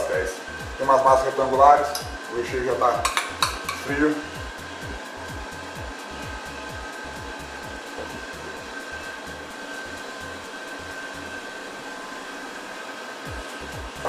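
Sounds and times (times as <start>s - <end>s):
low thudding beats: 0.0s - 9.6s
ventilation fan drone: 0.0s - 14.0s.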